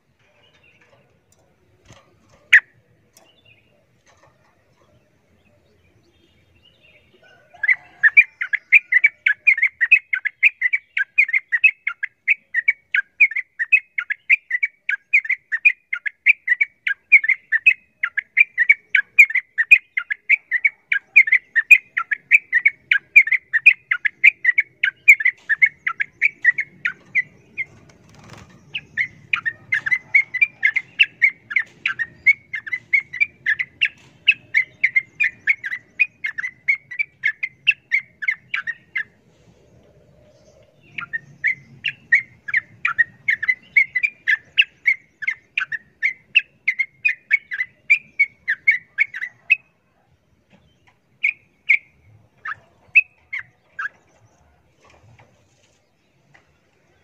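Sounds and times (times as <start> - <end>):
bulbul singing rapid repeated notes: 8.0 - 39.2.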